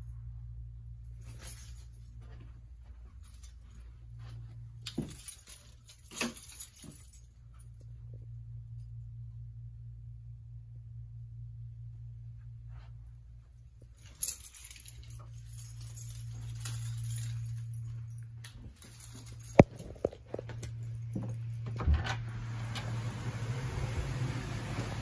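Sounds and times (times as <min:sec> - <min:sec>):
steady low hum: 0:00.0 - 0:25.0
footsteps: 0:01.2 - 0:07.3
handling noise: 0:01.2 - 0:07.7, 0:13.8 - 0:21.9.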